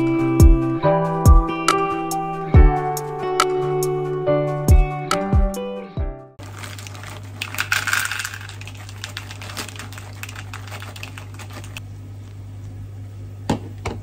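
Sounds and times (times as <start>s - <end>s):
frozen corn pouring into bowl: 6.4s - 11.8s
plastic bag crinkling: 6.4s - 11.8s.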